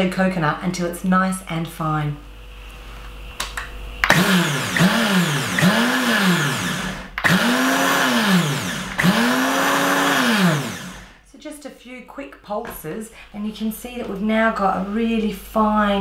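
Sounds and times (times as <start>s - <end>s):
blender motor whining: 4.0s - 11.2s.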